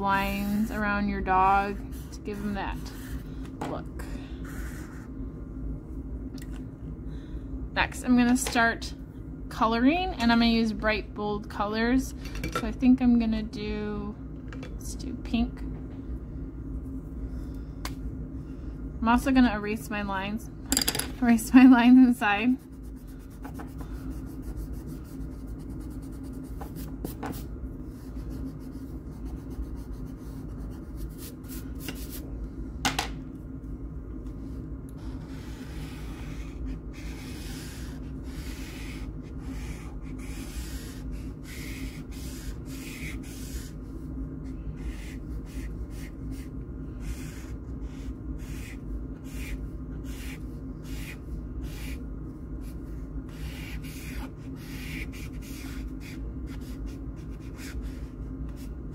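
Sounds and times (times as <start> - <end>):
steady low hum: 0.0 - 58.9
eraser rubbing on paper: 0.2 - 3.2, 22.5 - 27.4, 28.0 - 32.2, 35.0 - 44.0, 44.7 - 52.0, 52.6 - 58.7
marker scratching on paper: 1.5 - 3.2, 4.4 - 5.1, 22.5 - 27.4, 28.0 - 32.2, 35.0 - 43.8, 44.8 - 52.0, 52.6 - 58.7.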